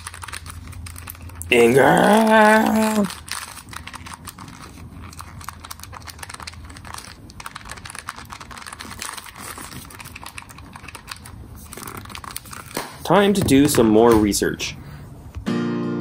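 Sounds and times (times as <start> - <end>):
plastic keyboard keys clicking: 3.4 - 12.6.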